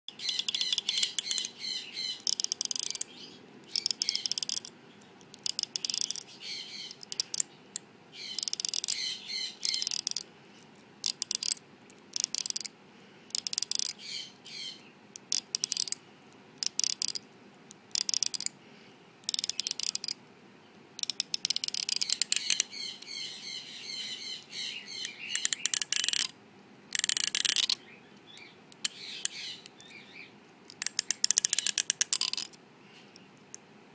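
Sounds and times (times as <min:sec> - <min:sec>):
fingers rattling comb teeth: 0:02.2 - 0:03.1, 0:03.7 - 0:06.3, 0:06.9 - 0:07.5, 0:08.3 - 0:09.0, 0:09.6 - 0:10.3, 0:11.0 - 0:12.7, 0:13.3 - 0:14.0, 0:15.2 - 0:16.0, 0:16.6 - 0:17.2, 0:17.9 - 0:18.5, 0:19.2 - 0:20.2, 0:21.0 - 0:22.7, 0:25.0 - 0:26.3, 0:26.9 - 0:27.8, 0:30.7 - 0:32.6.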